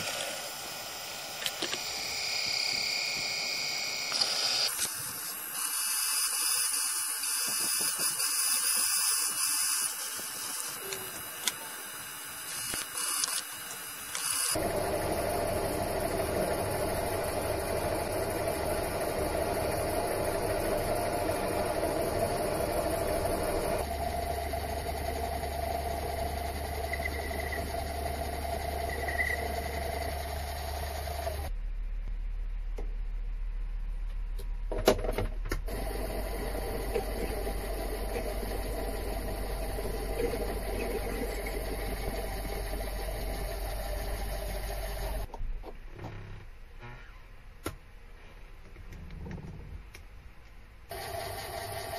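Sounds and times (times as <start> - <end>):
lathe motor running: 14.1 - 31.5, 35.7 - 45.3, 50.9 - 51.9.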